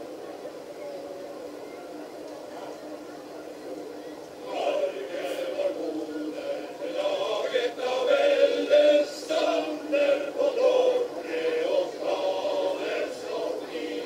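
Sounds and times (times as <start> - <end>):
men's choir singing: 4.4 - 14.0.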